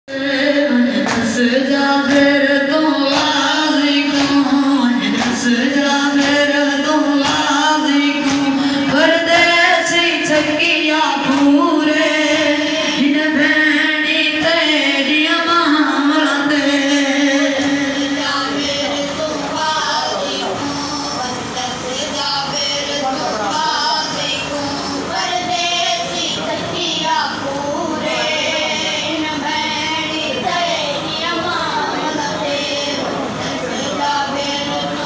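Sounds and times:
men slapping chests: 1.0s - 1.4s, 4.1s - 4.4s, 5.2s - 5.5s, 8.2s - 8.5s.

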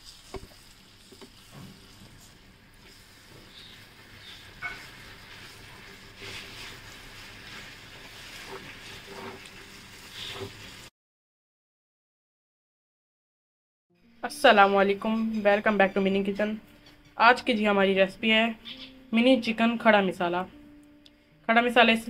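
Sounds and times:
food sizzling: 0.0s - 10.9s
spoon stirring and scraping pot: 0.0s - 10.9s.

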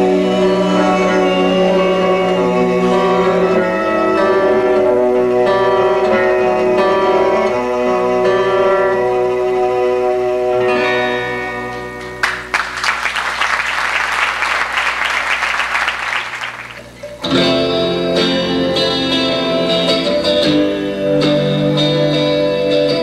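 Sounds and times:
acoustic band holding notes: 0.0s - 23.0s
acoustic guitars playing: 0.0s - 23.0s
audience applauding: 12.0s - 17.1s.

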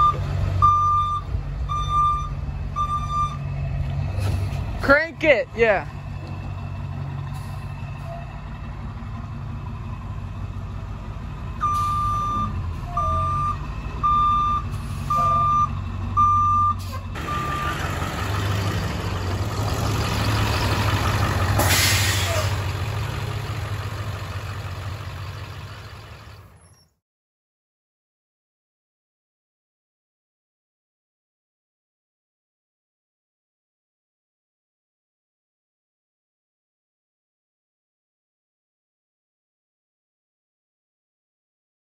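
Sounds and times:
reversing alarm beeping: 0.0s - 3.4s, 11.6s - 17.8s
bus engine running: 0.0s - 26.8s
hissing air burst: 21.5s - 22.6s.

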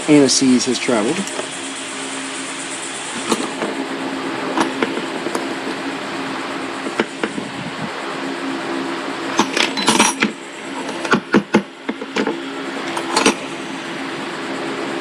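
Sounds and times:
steady hum: 0.0s - 15.0s
metal tools clinking on workbench: 9.4s - 13.5s.

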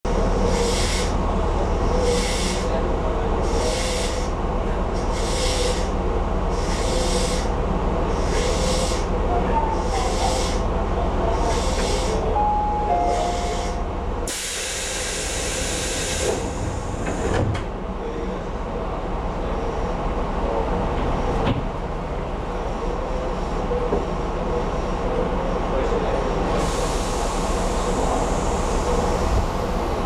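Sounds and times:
train equipment humming: 0.1s - 30.0s
compressed air hissing out: 0.5s - 1.1s, 5.1s - 5.9s, 6.6s - 7.5s, 14.3s - 17.0s.

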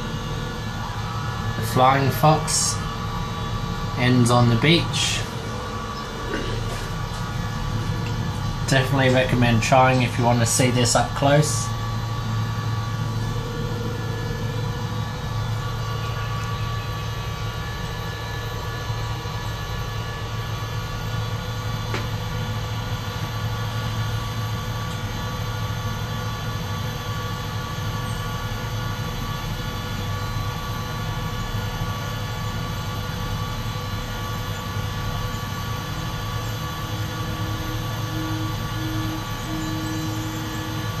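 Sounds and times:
cable car cabin drone: 0.0s - 41.0s.

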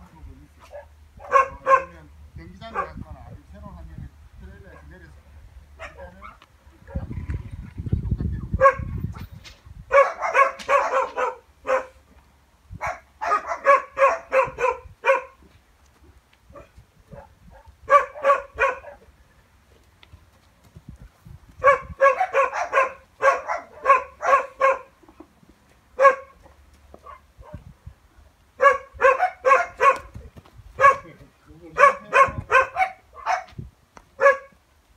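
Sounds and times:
small dog yapping: 9.9s - 12.0s, 21.6s - 24.9s, 28.6s - 30.2s.

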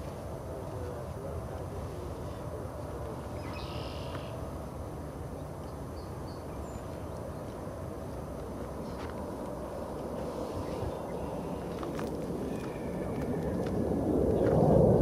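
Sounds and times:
distant jet engines rumbling: 0.0s - 15.0s
faint bird chirps: 3.4s - 4.4s.

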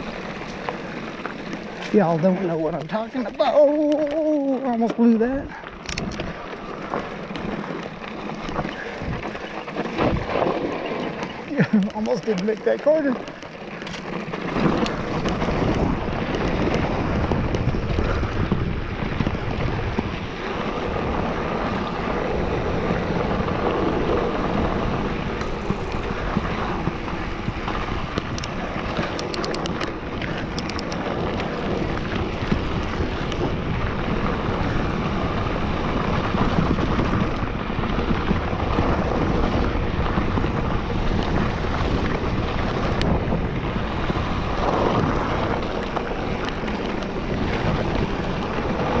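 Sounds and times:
tyres crunching on gravel: 0.0s - 5.0s
wind on microphone: 0.0s - 49.0s
small clicks: 5.8s - 16.8s, 28.2s - 31.5s.

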